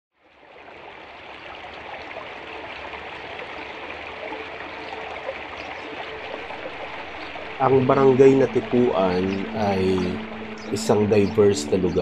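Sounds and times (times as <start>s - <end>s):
running water rushing: 0.2s - 12.0s.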